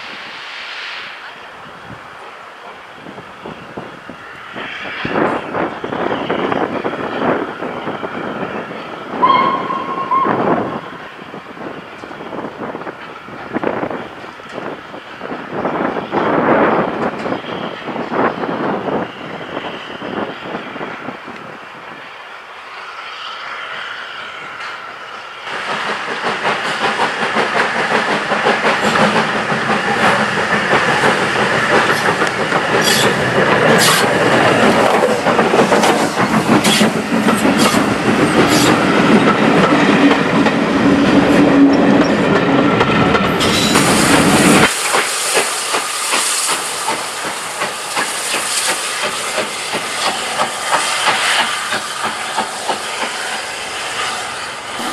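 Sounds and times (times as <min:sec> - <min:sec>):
steam hissing: 0:00.0 - 0:08.4, 0:21.9 - 0:41.4, 0:43.4 - 0:54.9
steam locomotive working: 0:00.0 - 0:54.9.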